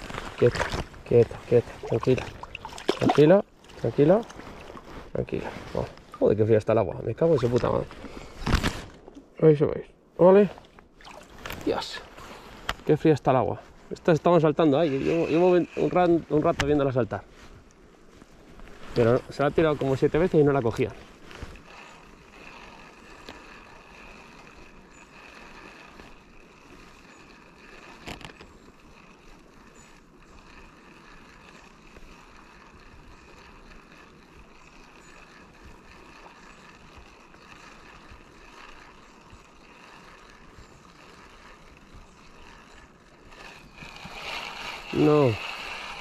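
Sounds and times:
river water flowing: 0.0s - 5.1s, 10.5s - 12.8s.

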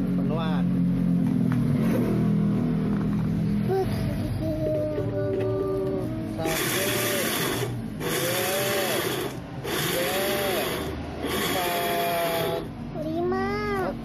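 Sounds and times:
electric blender grinding: 6.4s - 12.7s.

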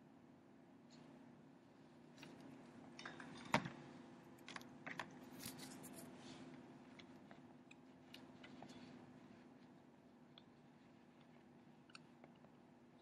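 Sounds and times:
faint low hum: 0.0s - 13.0s
paper crinkle: 5.2s - 6.4s.

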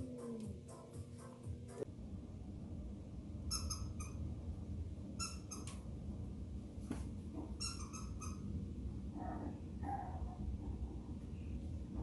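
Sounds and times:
squeaky dog toy squeaking: 3.5s - 4.2s, 5.2s - 5.8s, 7.6s - 8.5s.

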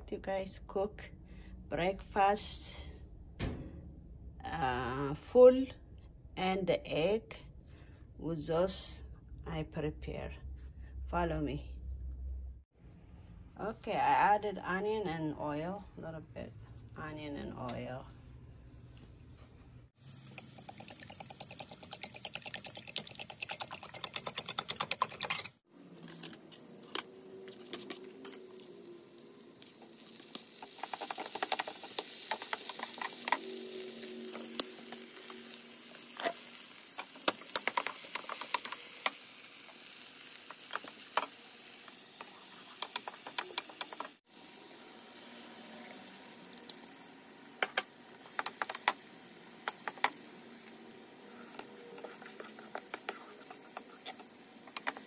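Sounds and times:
vegetables sizzling in oil: 28.2s - 55.0s
wooden spoon scraping pan: 51.3s - 55.0s.

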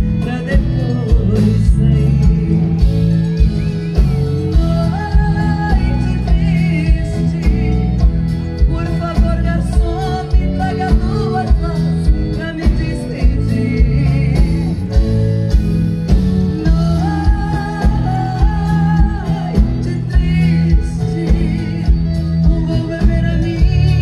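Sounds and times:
woman singing: 0.0s - 15.2s, 16.4s - 24.0s
accordion: 0.0s - 24.0s
acoustic guitar: 0.0s - 24.0s
bass guitar: 0.0s - 24.0s
drums: 0.0s - 24.0s.

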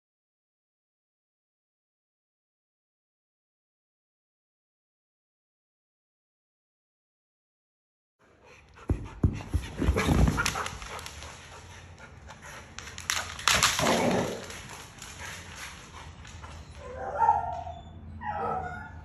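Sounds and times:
dogs moving with thumps: 8.9s - 17.0s
dog yipping: 16.4s - 19.0s.

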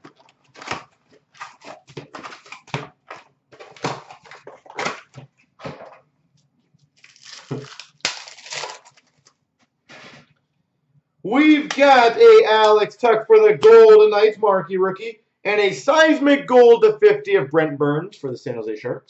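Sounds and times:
foil wrappers crinkling: 0.0s - 6.0s, 6.8s - 10.3s.

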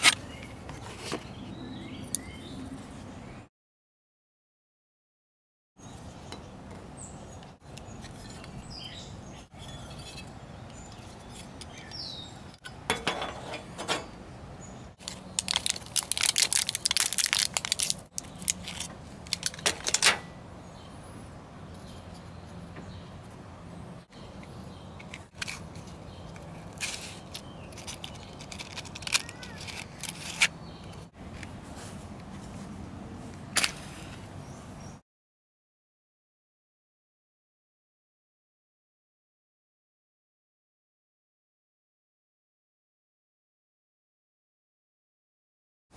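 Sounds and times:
metal stove clinks: 12.6s - 14.2s
foil pack crinkling: 15.0s - 20.0s, 25.3s - 30.5s.

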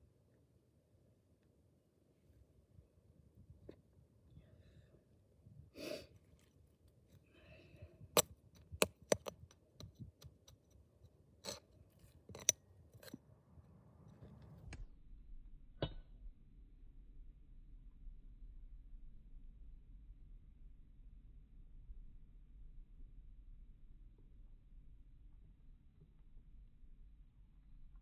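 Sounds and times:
soil rustling: 5.8s - 13.2s
trowel clicking against concrete block: 8.2s - 10.7s, 12.3s - 13.2s
trowel scraping in compost: 11.4s - 13.2s.

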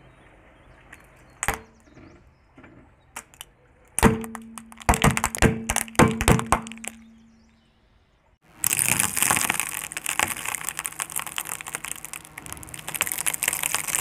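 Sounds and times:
plastic cracking under car tyre: 3.2s - 7.3s, 8.5s - 14.0s.

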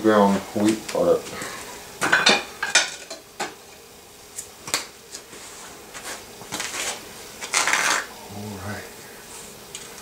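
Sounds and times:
scraping rustle: 5.1s - 8.1s.

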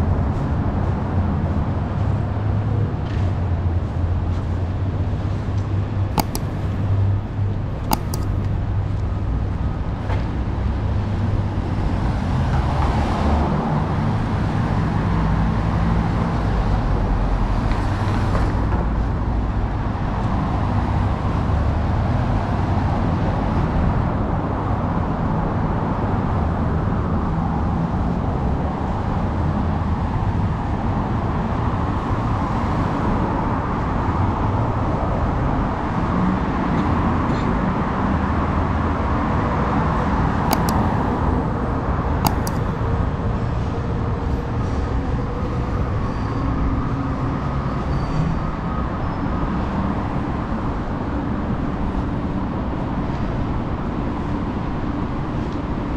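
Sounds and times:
passing traffic: 0.0s - 55.9s
sharp clicks: 6.2s - 6.8s, 7.9s - 8.5s, 40.5s - 41.4s, 42.2s - 42.7s.

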